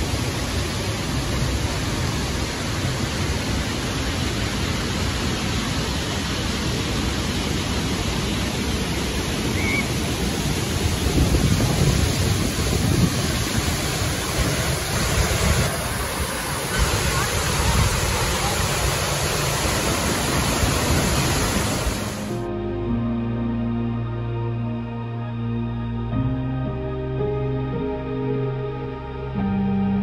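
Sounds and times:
waterfall roaring: 0.0s - 22.4s.

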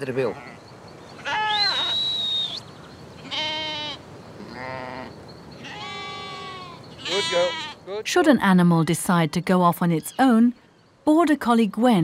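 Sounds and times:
sheep bleating: 3.2s - 8.0s.

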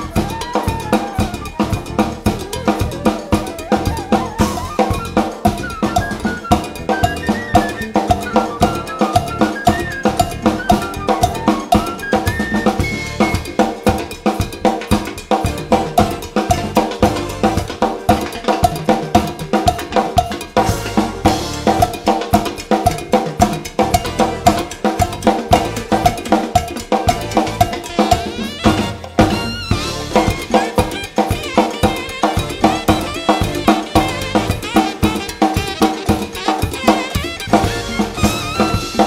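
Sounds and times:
backing track melody: 0.0s - 39.0s
cowbell pattern: 0.0s - 39.0s
drum kit groove: 0.0s - 39.0s.

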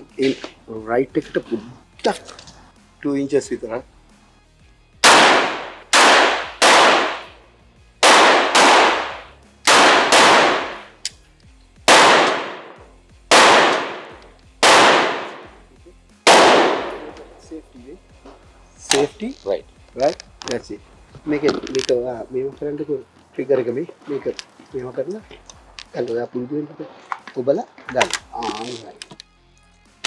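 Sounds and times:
rifle shots echoing: 5.0s - 7.4s, 8.0s - 11.0s, 11.9s - 15.6s, 16.2s - 17.3s.

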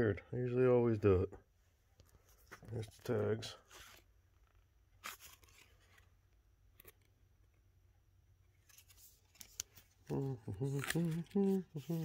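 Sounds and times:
cardboard tags rustling: 5.0s - 7.1s, 8.5s - 12.0s.

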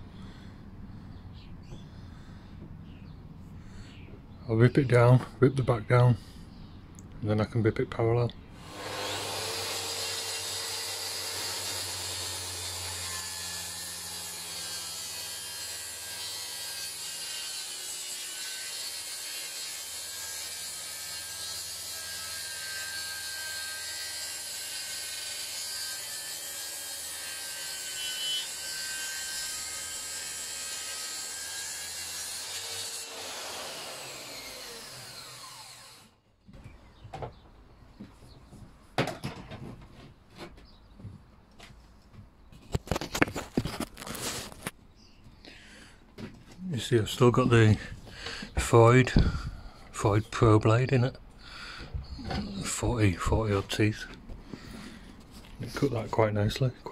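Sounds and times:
track saw cutting wood: 8.6s - 36.2s.

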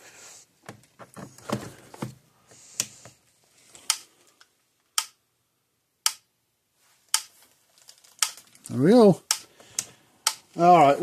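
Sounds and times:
handling knocks: 0.7s - 2.2s.

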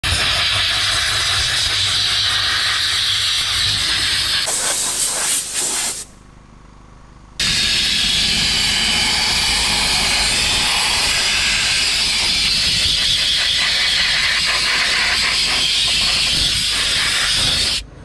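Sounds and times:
steam cleaner hissing: 0.0s - 6.1s, 7.4s - 17.8s.

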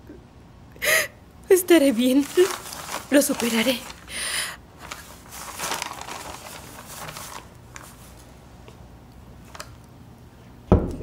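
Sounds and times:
faint steady hum: 0.0s - 11.0s
paper rustling: 1.8s - 4.2s, 4.8s - 8.3s
wooden door thump: 10.7s - 11.0s.

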